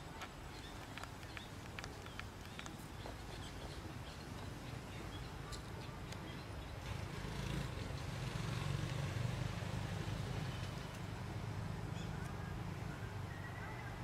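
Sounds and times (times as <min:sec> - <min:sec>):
faint clicks and chirps: 0:00.1 - 0:06.9.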